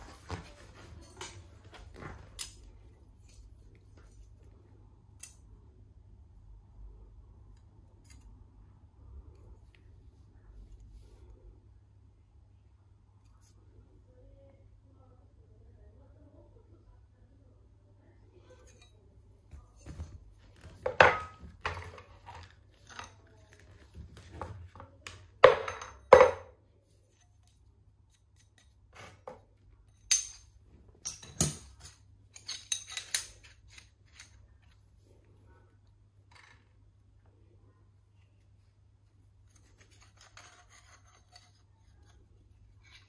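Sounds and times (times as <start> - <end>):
metal tools clicking and clinking: 29.9 - 34.4.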